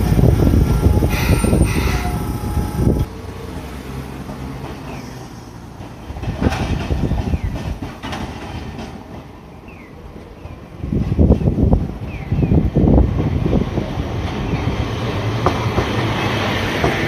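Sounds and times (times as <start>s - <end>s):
rail squeals: 0.0s - 3.1s
tram wheels rumbling on rail: 0.0s - 17.0s
faint rail clacks: 3.4s - 11.6s, 15.4s - 17.0s.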